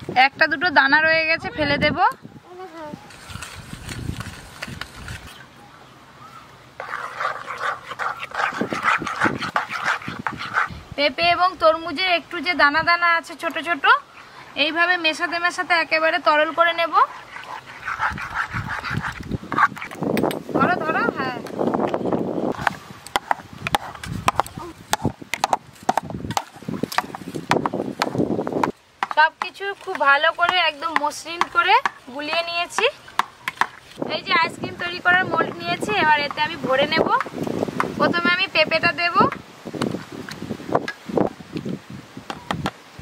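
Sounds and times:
metal spoons scraping metal bowls: 6.8s - 10.8s, 13.6s - 20.4s.

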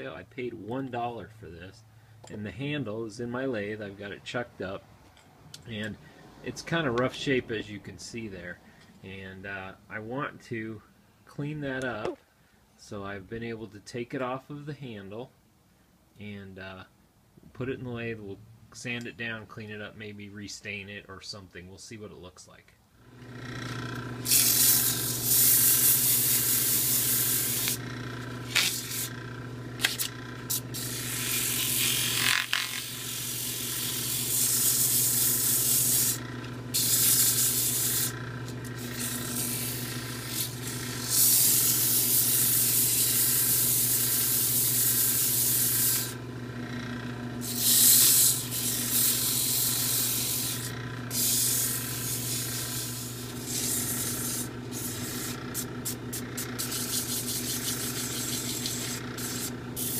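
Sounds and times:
lathe motor humming: 23.1s - 59.9s
sandpaper hissing on wood: 24.3s - 27.8s, 28.5s - 29.1s, 29.8s - 36.2s, 36.8s - 38.1s, 38.8s - 46.2s, 47.4s - 59.9s.

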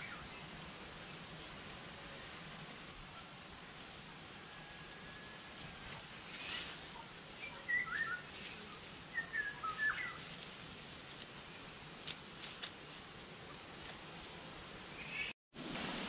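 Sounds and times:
rustling of soil and leaves: 0.0s - 16.0s
songbird whistled chirps: 7.4s - 8.3s, 9.2s - 10.2s.

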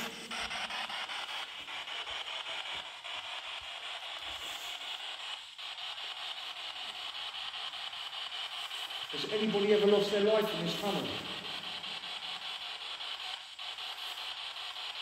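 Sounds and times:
radio static hiss chopping: 0.0s - 15.0s.

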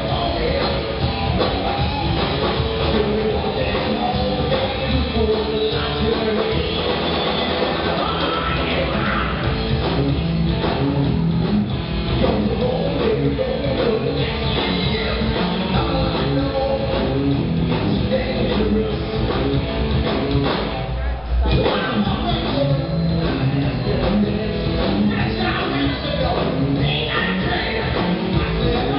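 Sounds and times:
rock band playing: 0.0s - 28.9s.

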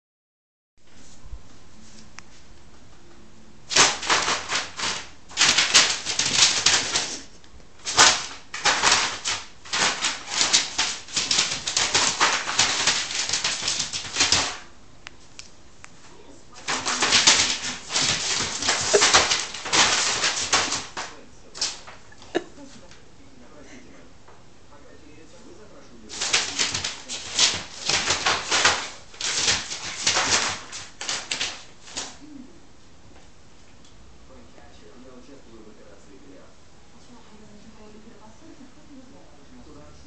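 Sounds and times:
cat scrabbling on paper: 3.7s - 14.7s, 16.5s - 22.0s, 26.1s - 32.2s
paper crinkling: 3.7s - 14.7s, 16.5s - 22.0s, 26.1s - 32.2s.

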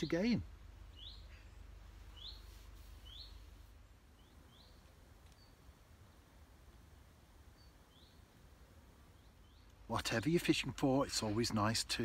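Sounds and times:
small bird chirping: 0.8s - 6.3s, 7.5s - 8.3s, 9.1s - 9.8s.

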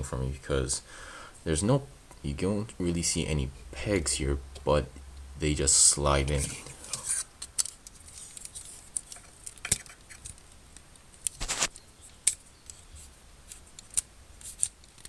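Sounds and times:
plastic parts scraping: 6.3s - 10.4s
plastic parts clicking: 6.5s - 12.8s, 13.5s - 15.0s.

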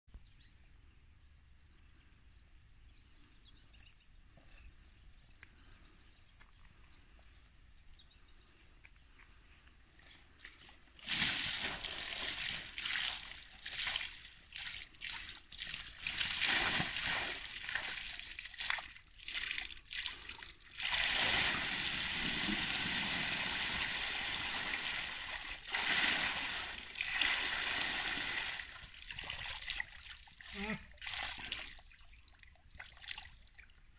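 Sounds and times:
water splashing and sloshing: 10.0s - 33.9s.

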